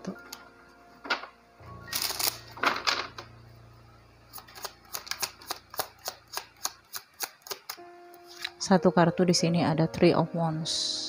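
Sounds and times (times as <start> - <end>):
cards being shuffled: 1.9 - 2.8, 4.4 - 8.5
sharp card clicks: 4.4 - 7.8.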